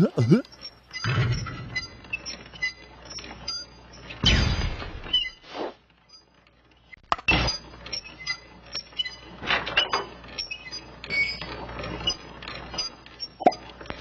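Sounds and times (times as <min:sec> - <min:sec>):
short squeaky sounds: 0:00.0 - 0:04.2.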